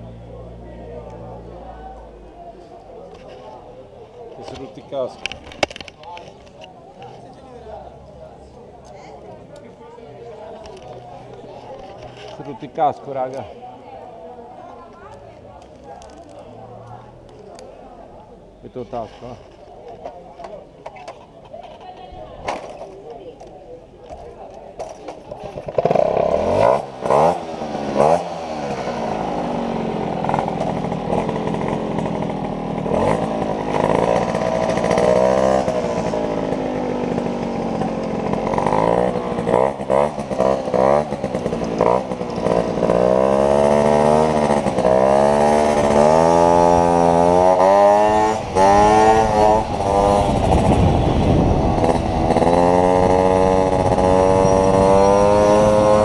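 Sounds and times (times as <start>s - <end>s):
small motorcycle engine revving: 25.5s - 56.0s.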